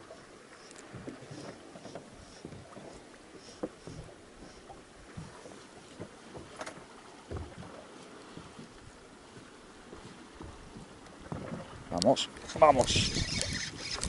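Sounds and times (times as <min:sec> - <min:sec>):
faint water: 0:00.0 - 0:14.0
wind: 0:00.0 - 0:14.0
light knocks and taps: 0:05.1 - 0:07.7.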